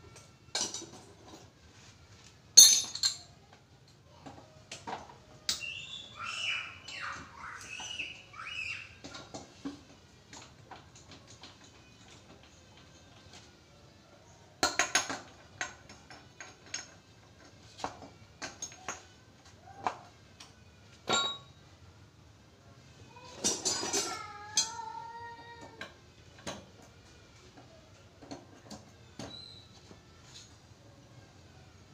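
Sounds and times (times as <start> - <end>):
metal tools clinking and knocking: 0.1 - 1.5, 2.6 - 3.4, 21.0 - 21.6, 23.3 - 25.0.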